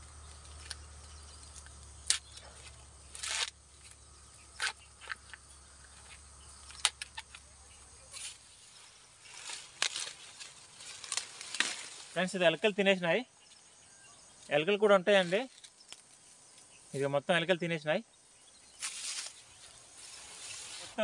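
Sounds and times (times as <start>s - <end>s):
corn husk crackling as peeled: 0.0s - 12.4s.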